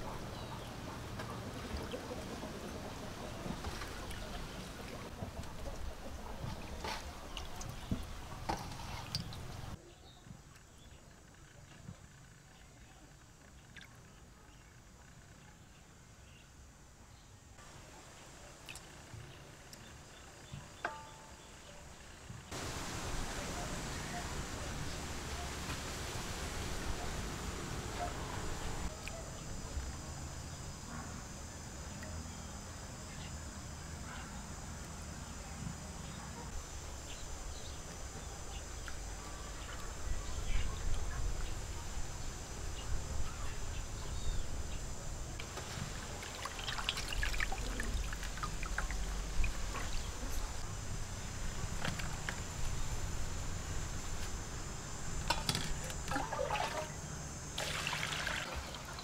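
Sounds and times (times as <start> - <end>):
water splashing in metal bowl: 45.6 - 50.1, 55.3 - 57.0, 57.6 - 59.0.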